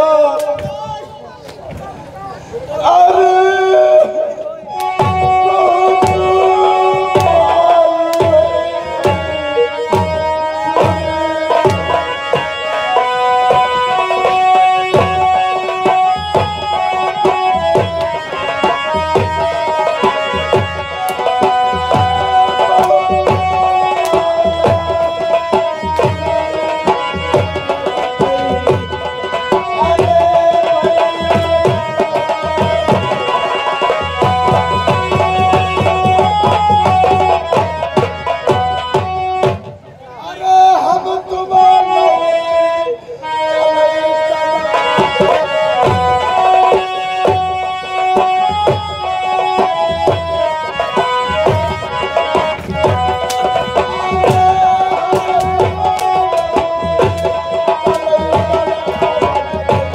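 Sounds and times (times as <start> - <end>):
melody of held notes: 4.4 - 40.0, 41.4 - 59.9
hand drum playing quick rhythm: 13.5 - 39.8, 45.0 - 59.9.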